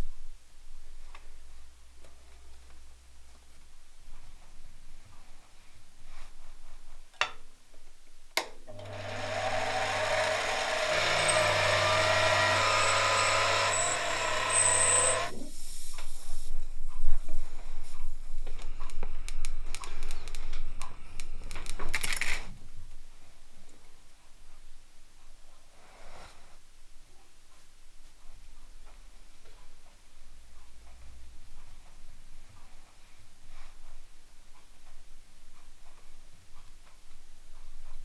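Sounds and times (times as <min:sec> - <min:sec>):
motor hum: 0:08.7 - 0:15.3
air blowpipe hissing: 0:08.7 - 0:16.0
small parts clicking and tapping: 0:18.6 - 0:22.5.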